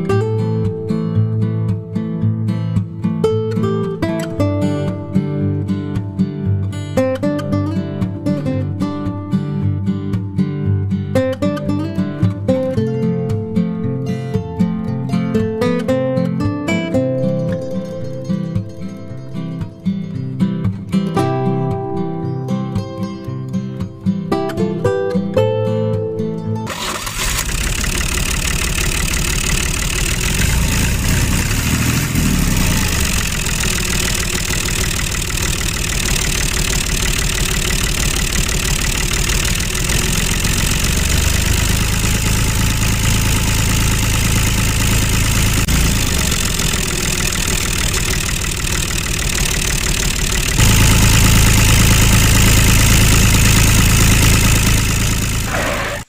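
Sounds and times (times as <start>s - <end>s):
tractor engine chugging: 26.7s - 56.0s.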